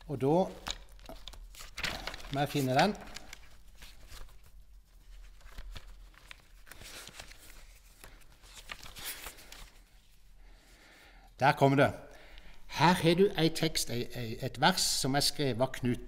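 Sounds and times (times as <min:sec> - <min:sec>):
handling rustles: 0:00.5 - 0:10.2.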